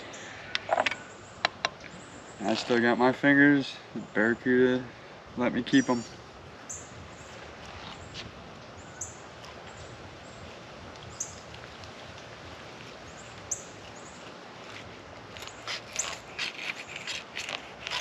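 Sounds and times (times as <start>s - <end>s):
outdoor background: 0.0s - 18.0s
knife scraping through fish skin: 14.6s - 18.0s.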